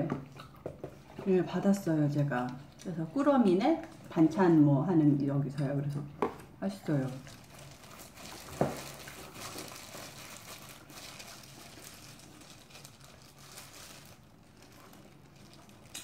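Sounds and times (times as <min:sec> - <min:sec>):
faint chewing: 0:00.1 - 0:04.1, 0:06.2 - 0:16.0
plastic gloves crinkling: 0:06.5 - 0:16.0.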